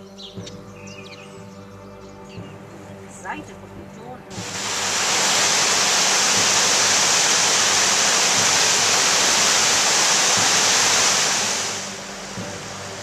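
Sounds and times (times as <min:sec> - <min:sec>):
river rushing over rapids: 0:04.3 - 0:13.0.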